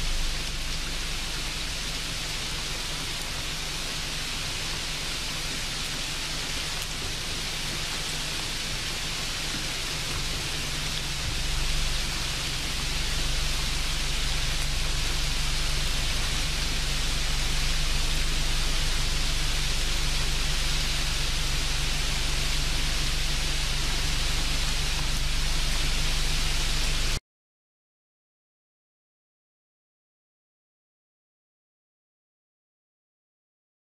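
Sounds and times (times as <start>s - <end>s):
low hum: 0.0s - 27.2s
steady hiss: 0.0s - 27.2s.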